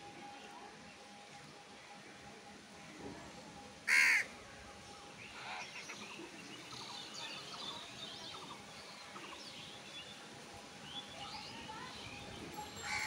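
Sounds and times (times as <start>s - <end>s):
crow cawing: 3.9s - 4.3s.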